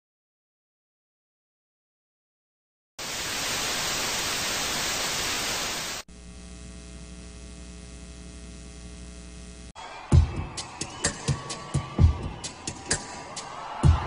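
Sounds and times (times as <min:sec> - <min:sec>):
tv static hiss: 0:03.0 - 0:09.7
electrical hum with tones: 0:03.1 - 0:09.8.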